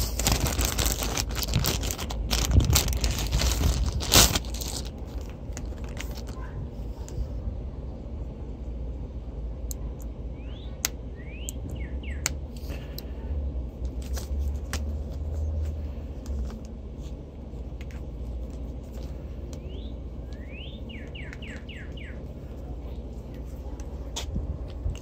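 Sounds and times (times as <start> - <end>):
low rumble: 0.0 - 21.2
small birds chirping: 10.3 - 12.4, 19.5 - 23.4.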